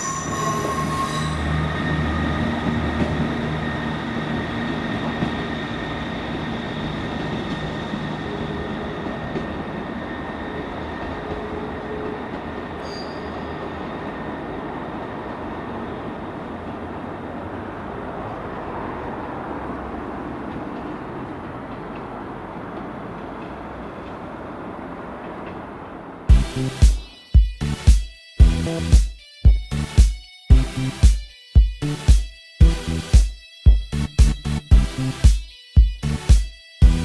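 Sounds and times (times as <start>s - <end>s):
high wheel squeal: 0.0s - 25.4s
diesel engines rumbling: 0.8s - 26.8s.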